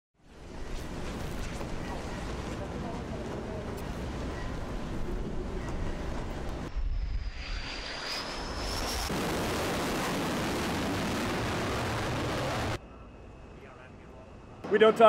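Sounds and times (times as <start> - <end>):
wind: 0.2 - 15.0
sea noise: 3.9 - 12.8
jet engine whine: 4.6 - 15.0
jet engine roar: 5.0 - 12.8.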